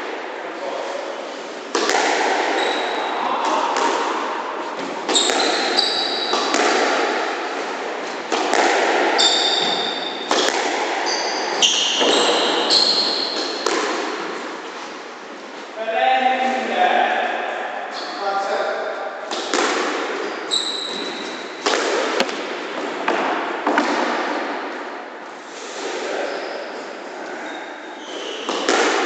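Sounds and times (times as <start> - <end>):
squash ball hitting walls: 1.7 - 14.6, 19.2 - 25.0, 28.4 - 29.0
shoes squeaking on wooden floor: 2.5 - 3.2, 5.0 - 6.5, 9.2 - 10.1, 11.0 - 13.6, 20.2 - 21.5, 26.2 - 28.6.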